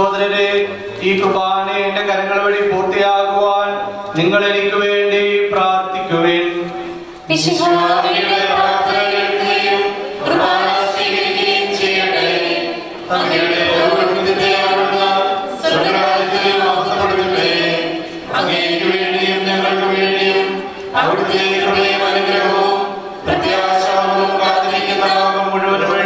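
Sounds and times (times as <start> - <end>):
choir chanting: 7.3 - 26.0.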